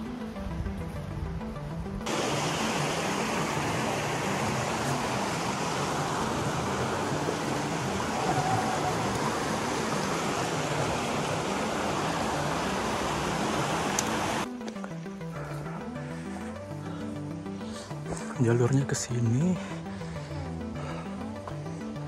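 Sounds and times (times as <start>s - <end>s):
mountain stream rushing: 2.1s - 14.5s.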